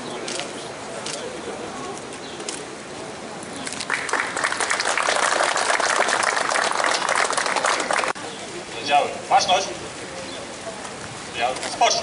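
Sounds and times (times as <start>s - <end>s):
crowd applauding: 3.8s - 8.2s.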